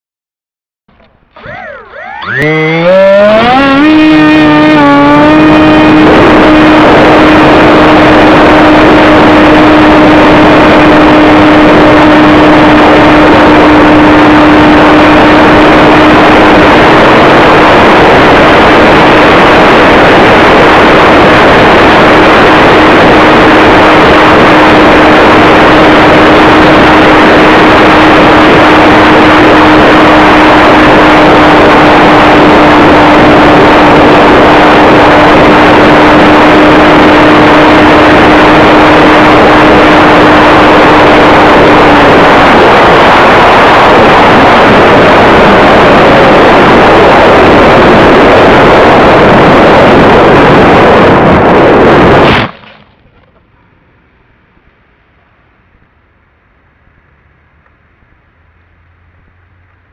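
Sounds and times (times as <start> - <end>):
electric motor whine: 1.0 - 52.7
wind rush: 1.4 - 53.1.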